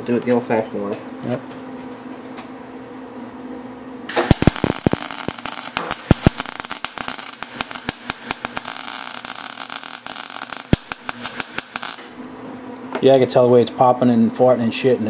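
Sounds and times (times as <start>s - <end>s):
welding arc crackling and popping: 4.1s - 12.2s.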